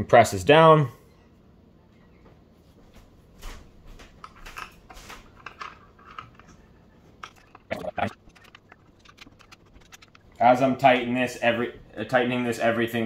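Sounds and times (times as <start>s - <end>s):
allen key clicking and scraping: 4.2s - 10.4s.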